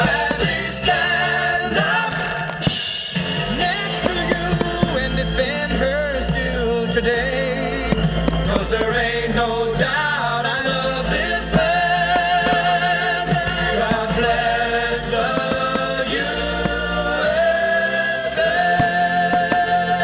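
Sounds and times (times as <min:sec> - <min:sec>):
firework pops: 0:00.0 - 0:00.8, 0:04.0 - 0:05.1, 0:07.9 - 0:09.0, 0:11.6 - 0:12.8, 0:15.2 - 0:17.0
choir singing held notes: 0:00.0 - 0:02.5, 0:08.2 - 0:20.0.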